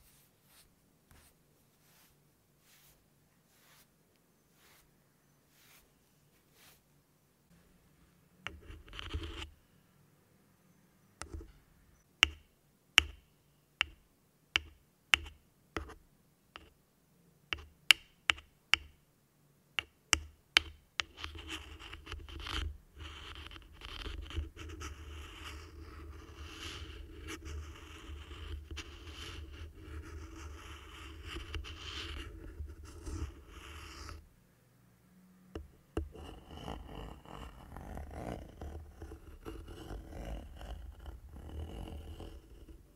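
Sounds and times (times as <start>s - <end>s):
scratching across microphone grille: 0.0s - 6.9s, 36.1s - 42.9s.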